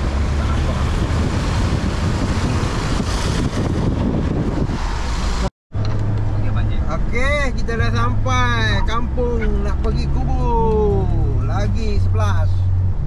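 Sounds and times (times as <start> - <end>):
wind buffeting microphone: 0.0 - 5.5
moving vehicle rumble: 0.0 - 13.0.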